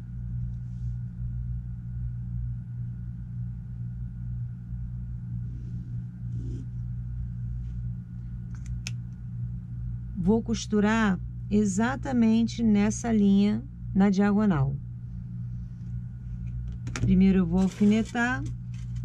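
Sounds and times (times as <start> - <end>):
low hum: 0.0 - 19.0
pen scratching on fabric: 6.3 - 6.7, 17.6 - 19.0.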